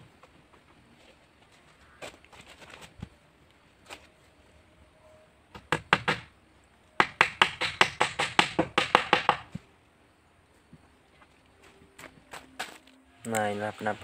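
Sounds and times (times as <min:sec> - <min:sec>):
hammer striking wooden planking: 0:05.5 - 0:06.3, 0:07.0 - 0:09.6.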